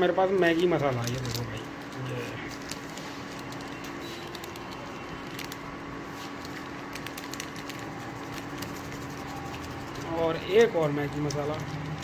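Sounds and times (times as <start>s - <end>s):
cooktop hum and fan hiss: 0.0s - 12.0s.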